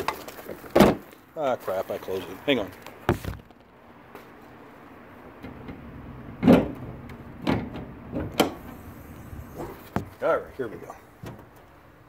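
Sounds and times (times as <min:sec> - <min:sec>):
phone handling knocks and rustles: 0:09.9 - 0:10.2.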